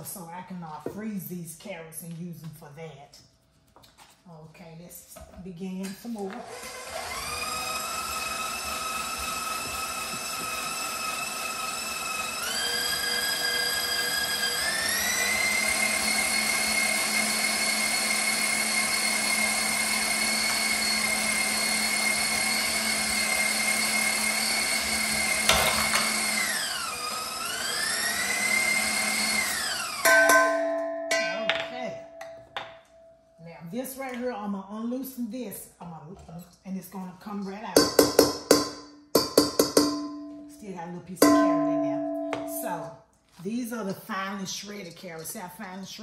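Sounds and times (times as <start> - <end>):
stand mixer motor whine: 6.4 - 30.2
mixer stopping with a clunk: 25.3 - 26.6.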